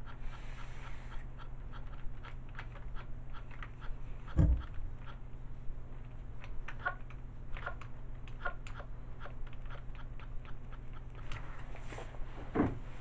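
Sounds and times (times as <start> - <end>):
low steady hum: 0.0 - 13.0
clicks and taps on plush toy: 4.3 - 5.2.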